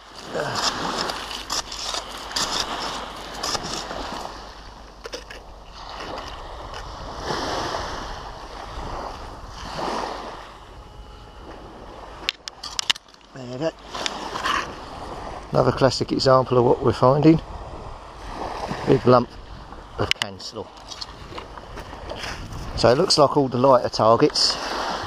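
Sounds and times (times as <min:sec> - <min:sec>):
footsteps crunching on shingle: 0:00.0 - 0:07.0, 0:20.7 - 0:23.2
small waves washing onto beach: 0:00.0 - 0:25.0.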